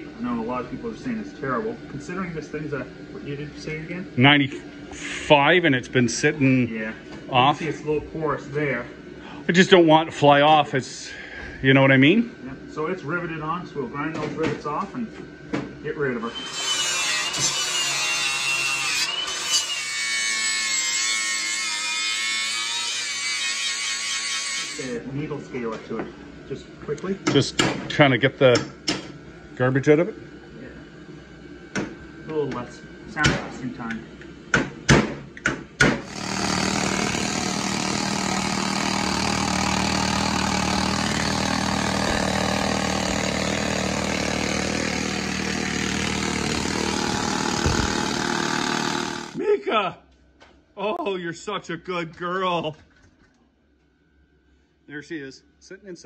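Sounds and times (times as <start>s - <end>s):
angle grinder grinding metal: 16.2s - 25.0s, 36.1s - 49.4s.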